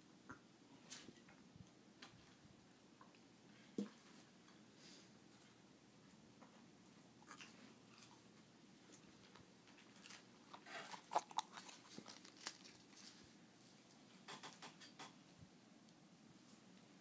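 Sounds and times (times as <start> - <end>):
rabbit chewing lettuce: 7.2 - 14.6.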